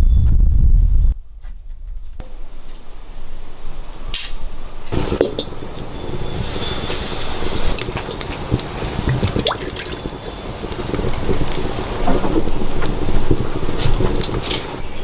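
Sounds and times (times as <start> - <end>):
water trickling into bowl: 8.0 - 10.4.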